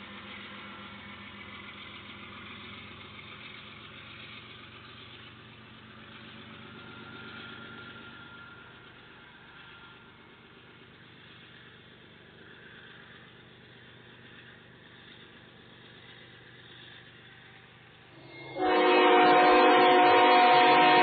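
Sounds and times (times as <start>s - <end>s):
diesel locomotive rumble: 0.0s - 21.0s
locomotive air horn chord: 18.2s - 21.0s.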